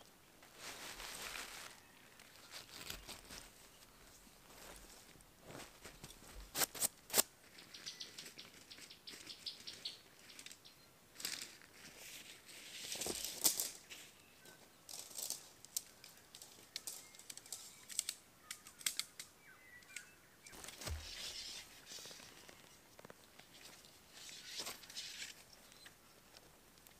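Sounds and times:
nylon tent fabric rustling: 0:00.4 - 0:03.9, 0:20.5 - 0:22.7
tent poles clicking and tapping: 0:05.9 - 0:10.6, 0:12.9 - 0:13.8, 0:14.9 - 0:26.9.

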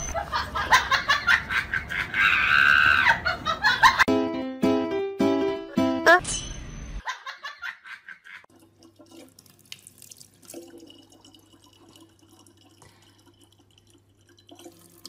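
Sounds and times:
water trickling into plastic bottle: 0:08.5 - 0:15.0.

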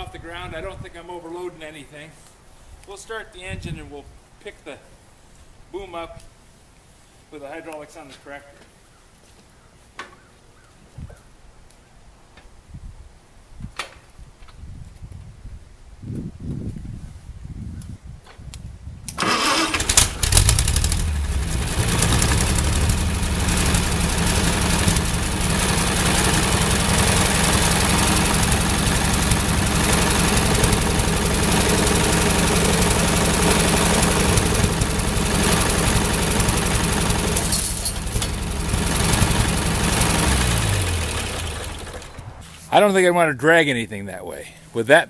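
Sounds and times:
tractor engine starting and running: 0:19.1 - 0:43.9.

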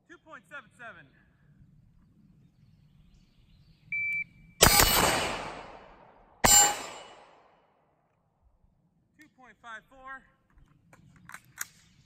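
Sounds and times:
shot timer beep: 0:04.0 - 0:05.0, 0:06.4 - 0:07.2
gunshots with echo: 0:04.6 - 0:07.7.

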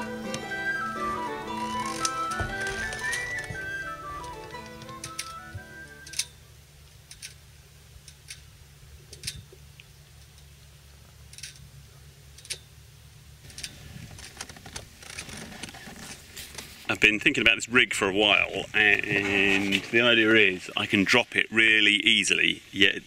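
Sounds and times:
background music: 0:00.0 - 0:06.3
low steady rumble: 0:00.0 - 0:22.7.

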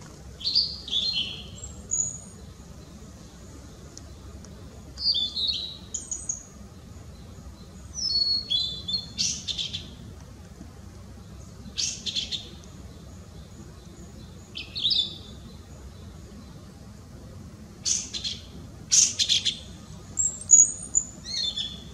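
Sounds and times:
bird singing whistles and buzzy notes: 0:00.4 - 0:02.5, 0:05.0 - 0:06.5, 0:07.1 - 0:10.0, 0:11.6 - 0:16.6, 0:17.8 - 0:21.9.

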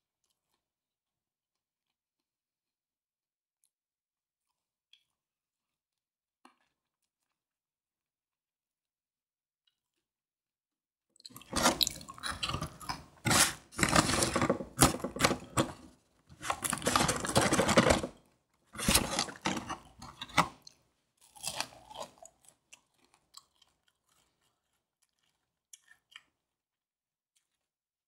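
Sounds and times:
fried chicken crunching: 0:11.3 - 0:18.2, 0:18.8 - 0:26.5.

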